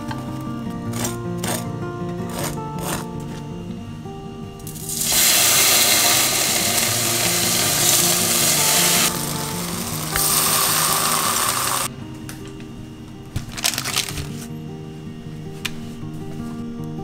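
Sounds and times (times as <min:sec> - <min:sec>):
ham sizzling in frying pan: 0:04.7 - 0:11.9.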